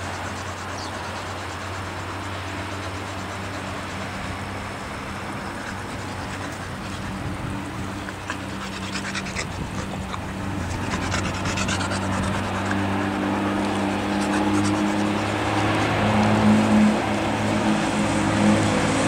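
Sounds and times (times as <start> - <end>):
low motor hum: 0.0 - 19.0
noisy rush: 0.0 - 19.0
faint high ticks: 7.7 - 15.1.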